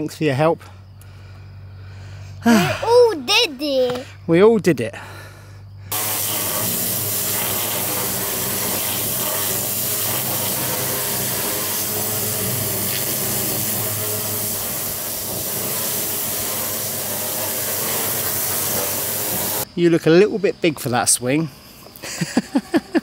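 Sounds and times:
machine low hum: 0:05.3 - 0:19.6
pressure washer spraying hiss: 0:05.9 - 0:19.7.

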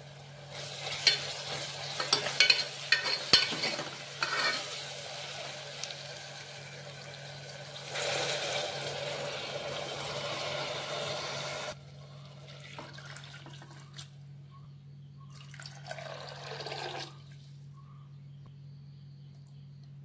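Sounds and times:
water pouring into a pot: 0:04.7 - 0:14.0, 0:15.4 - 0:17.2.

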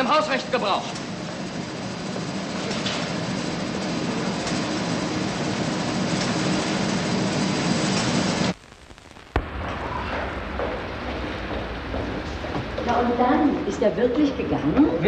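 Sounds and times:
machinery rushing noise: 0:00.0 - 0:08.6
machinery low hum: 0:00.0 - 0:15.0.

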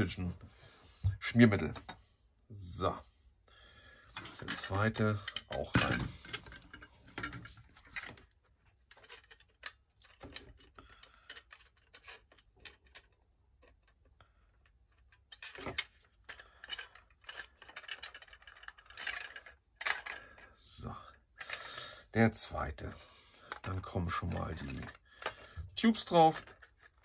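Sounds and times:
plastic parts clicking: 0:04.1 - 0:20.7, 0:23.4 - 0:27.0.

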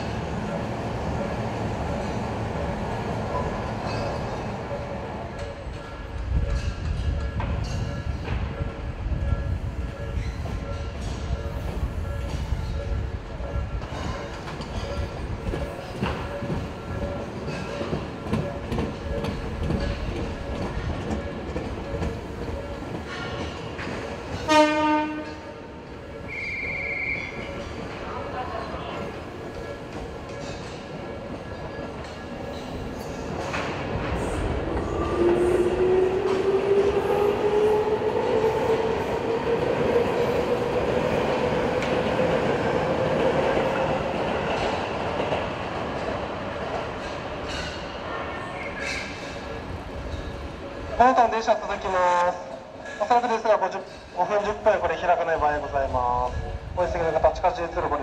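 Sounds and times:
train wheels clattering: 0:13.6 - 0:37.6, 0:38.2 - 0:48.0
train horn: 0:24.4 - 0:25.7, 0:26.3 - 0:27.3.

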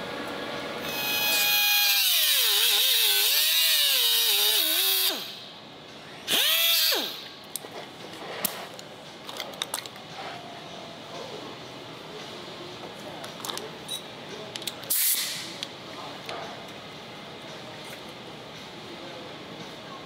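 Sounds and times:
pneumatic grinder whining: 0:00.8 - 0:05.5, 0:06.3 - 0:07.4.

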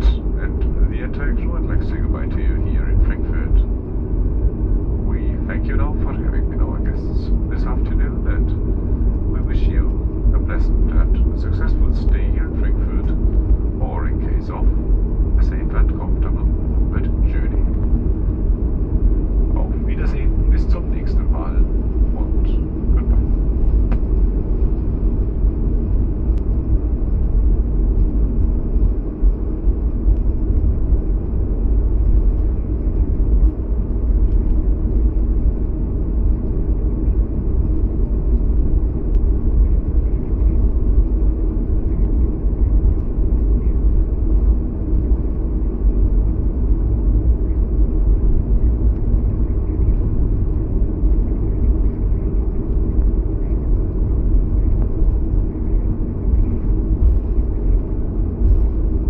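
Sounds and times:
aircraft cabin low rumble: 0:00.0 - 0:59.0.

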